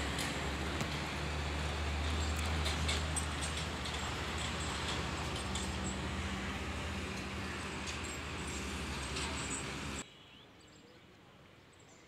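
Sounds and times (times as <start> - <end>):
engine humming: 0.0 - 10.0
bird chirp: 9.4 - 12.0.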